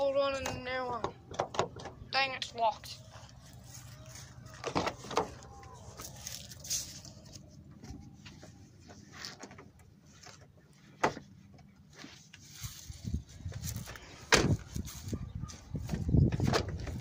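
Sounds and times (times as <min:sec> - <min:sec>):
knocks and rustling: 0:00.4 - 0:02.0, 0:04.5 - 0:12.2.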